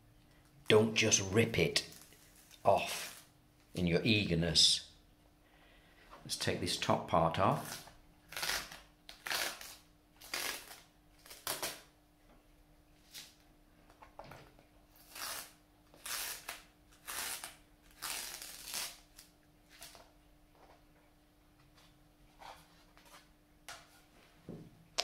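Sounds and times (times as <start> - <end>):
faint steady hum: 0.0 - 25.0
tape peeling off paper: 7.6 - 11.9, 14.9 - 20.1.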